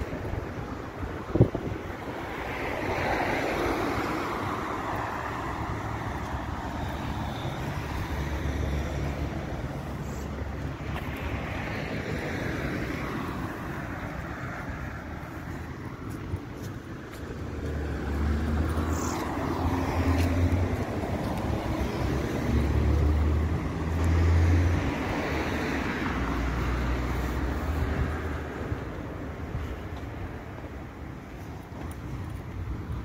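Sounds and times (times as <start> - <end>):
cars passing: 0.0 - 33.0.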